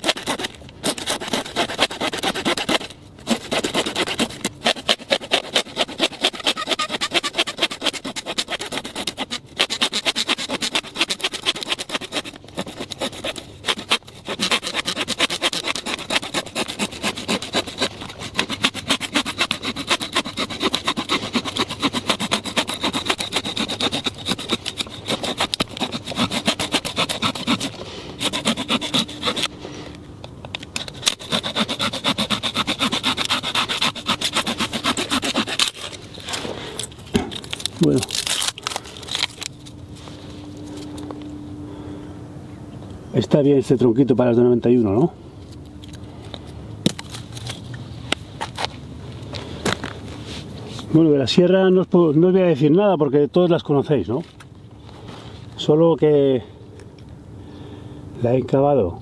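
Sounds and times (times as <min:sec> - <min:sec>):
hand saw cutting wood: 0:00.0 - 0:29.6, 0:30.8 - 0:36.9.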